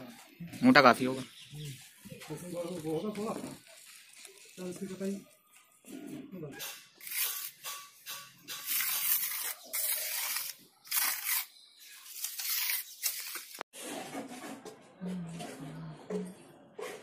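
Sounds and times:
trowel scraping wet cement: 0:07.0 - 0:14.6.

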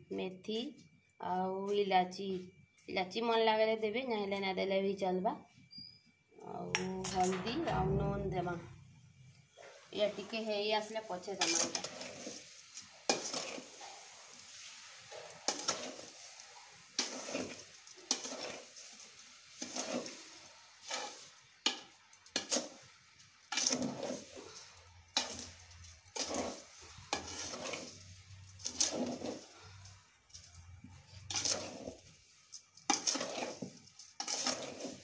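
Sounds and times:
metal spoon scraping steel bowl: 0:10.0 - 0:13.8, 0:15.1 - 0:16.2, 0:17.0 - 0:19.0, 0:19.6 - 0:22.9, 0:23.5 - 0:35.0.

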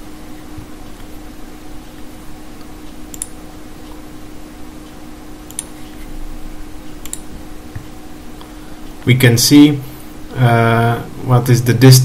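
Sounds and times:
low hum: 0:00.0 - 0:12.0
microphone hiss: 0:00.0 - 0:12.0
computer mouse clicks: 0:03.1 - 0:03.4, 0:05.5 - 0:06.1, 0:07.0 - 0:07.9.

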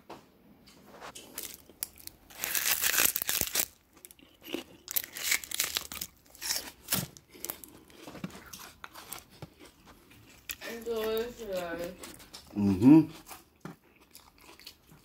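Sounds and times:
rustling and crinkling handling noise: 0:00.6 - 0:03.9, 0:04.9 - 0:12.5.

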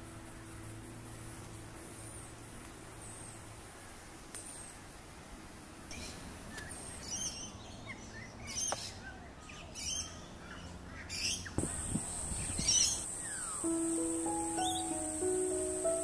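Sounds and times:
steady high-pitched whine: 0:00.0 - 0:05.6, 0:13.0 - 0:16.0
bird giving high chirping calls: 0:06.0 - 0:16.0
music: 0:13.6 - 0:16.0.

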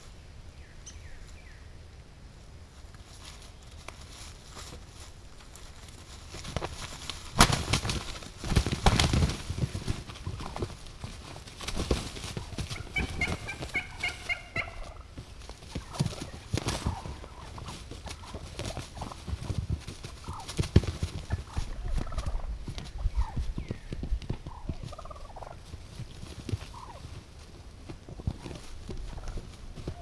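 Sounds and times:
dry leaves rustling: 0:02.4 - 0:30.0
wings flapping: 0:05.5 - 0:30.0
turkey calls: 0:12.3 - 0:19.3, 0:20.2 - 0:20.6, 0:21.2 - 0:25.7, 0:26.6 - 0:27.2, 0:28.1 - 0:30.0.

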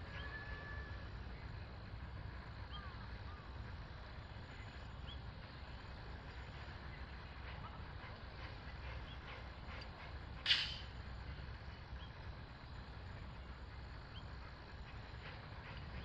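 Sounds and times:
steam locomotive rumble: 0:00.0 - 0:16.0
small birds chirping: 0:02.5 - 0:07.4, 0:11.0 - 0:16.0.

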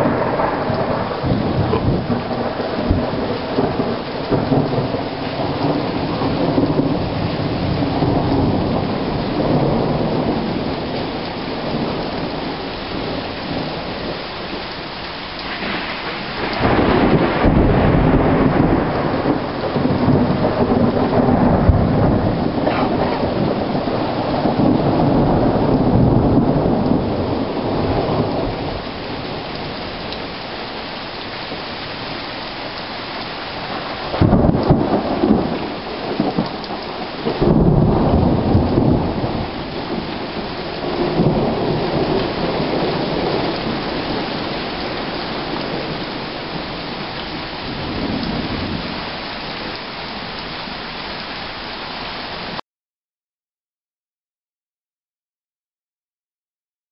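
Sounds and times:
rolling thunder: 0:00.0 - 0:14.6, 0:15.4 - 0:30.9, 0:33.4 - 0:49.7
steady rain: 0:00.0 - 0:52.6.

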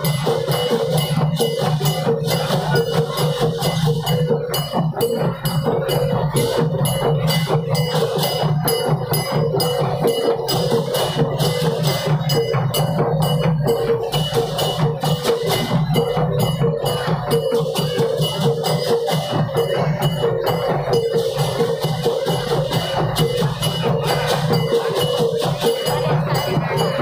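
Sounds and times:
wooden bells clattering rhythmically: 0:00.0 - 0:27.0.

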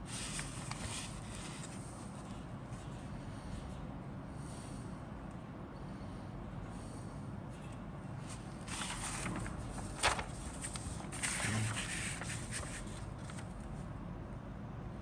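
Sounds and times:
paper pages rustling: 0:00.0 - 0:02.4, 0:08.2 - 0:13.7
paper snapping: 0:08.8 - 0:13.5.

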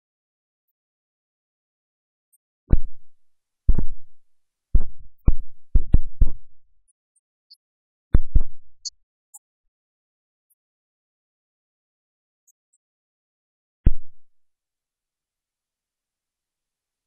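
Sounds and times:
low dull thumps: 0:02.7 - 0:03.1, 0:04.8 - 0:06.5.

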